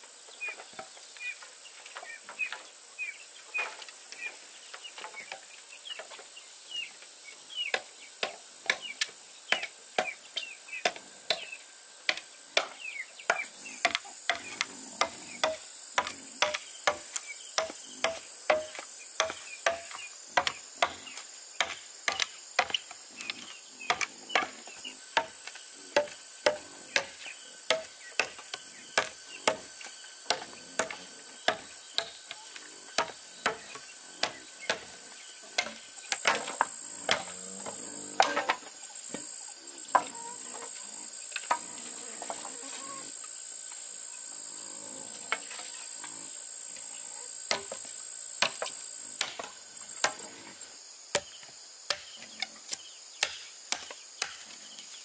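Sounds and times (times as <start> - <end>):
insects droning: 0.0 - 55.0
hand tool striking bamboo: 12.1 - 24.6, 25.2 - 29.7, 30.3 - 32.4, 33.0 - 34.9, 35.6 - 37.3, 48.4 - 50.2, 51.1 - 54.4.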